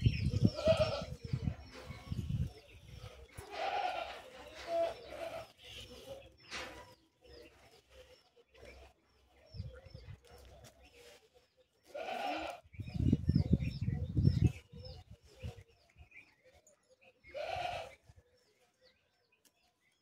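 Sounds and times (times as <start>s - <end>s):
farm animals bleating: 0.3s - 1.3s, 3.4s - 5.8s, 11.8s - 13.0s, 17.2s - 18.0s.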